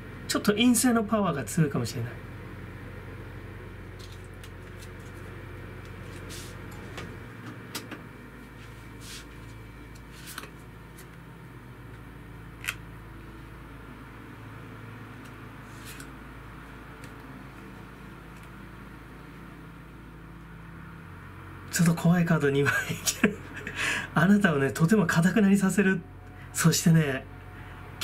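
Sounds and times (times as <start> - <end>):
low room hum: 0.0 - 28.0.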